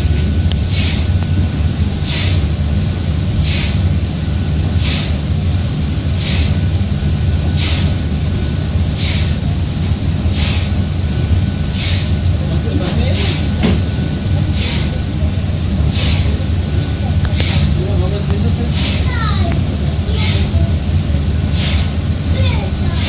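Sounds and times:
steam hiss: 0:00.0 - 0:12.5, 0:13.1 - 0:23.0
steam engine rumble: 0:00.0 - 0:23.0.

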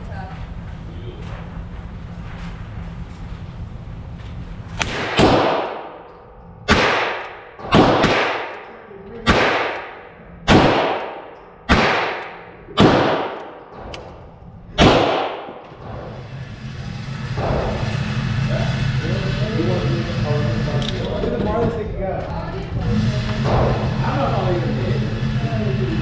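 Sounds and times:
revolver shots echoing indoors: 0:04.4 - 0:19.0, 0:22.9 - 0:25.4
fainter sharp cracks: 0:04.8 - 0:14.2, 0:14.8 - 0:15.8.

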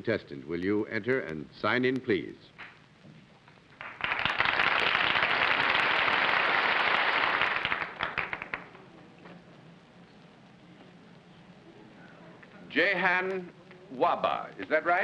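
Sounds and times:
studio audience applauding: 0:03.8 - 0:08.8.

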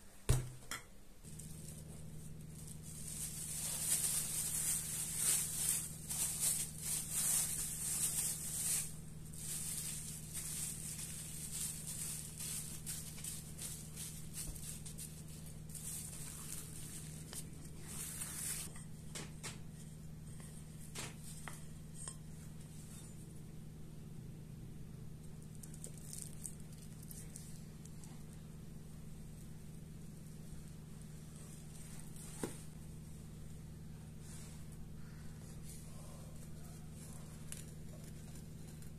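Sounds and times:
plastic bag crinkling: 0:01.2 - 0:18.7, 0:25.5 - 0:28.0.

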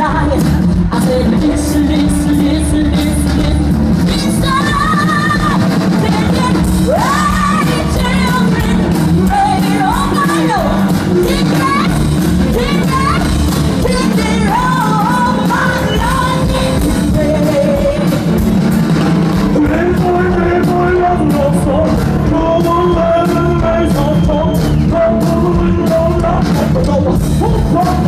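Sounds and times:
woman singing wordless vocal runs: 0:00.0 - 0:18.4
drums: 0:00.0 - 0:28.0
soul gospel band playing: 0:00.0 - 0:28.0.

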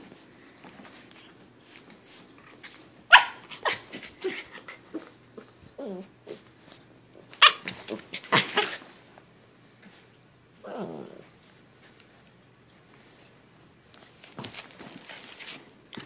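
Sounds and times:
puppy barking and growling: 0:03.1 - 0:06.4, 0:07.3 - 0:08.9.

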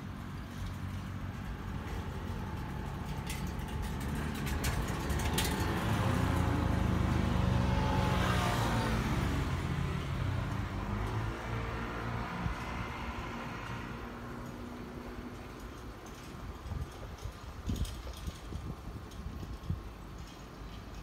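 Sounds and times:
vehicle passing by: 0:00.6 - 0:15.6.

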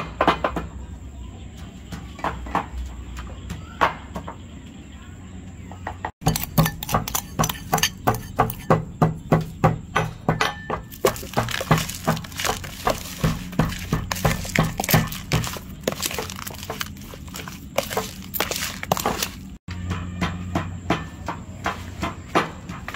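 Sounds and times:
meat slapping in plastic tub: 0:06.3 - 0:08.6, 0:10.9 - 0:19.6.

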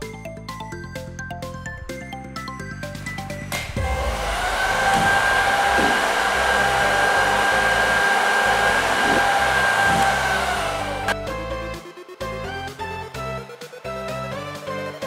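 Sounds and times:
hair dryer blowing: 0:03.5 - 0:11.2.

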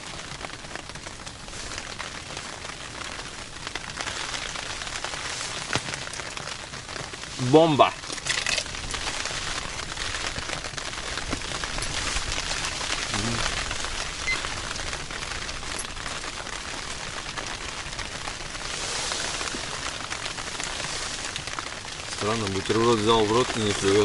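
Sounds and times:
rain pattering on tent fabric: 0:00.0 - 0:24.0.

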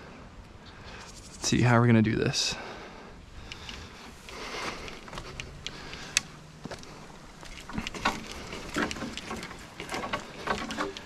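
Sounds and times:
twigs crackling and snapping: 0:03.4 - 0:11.0.

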